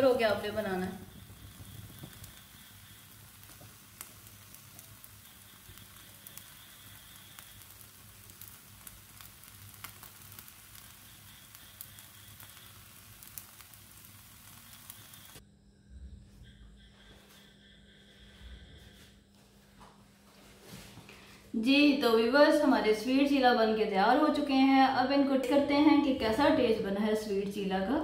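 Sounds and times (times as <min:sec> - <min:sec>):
batter sizzling in a pan: 0:00.0 - 0:15.4.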